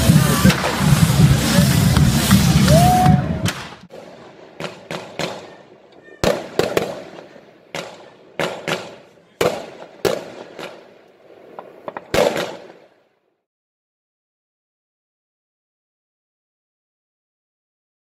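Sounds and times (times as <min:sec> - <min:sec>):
firework shells bursting: 0:00.0 - 0:13.0.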